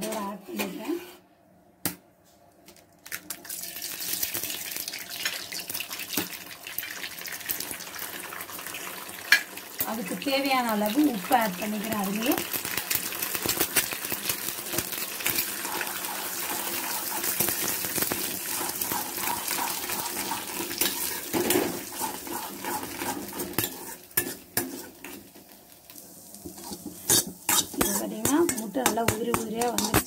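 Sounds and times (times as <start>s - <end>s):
eggs sizzling in hot oil: 3.2s - 30.0s
spoon clinking and scraping pan: 18.5s - 25.2s, 26.6s - 30.0s.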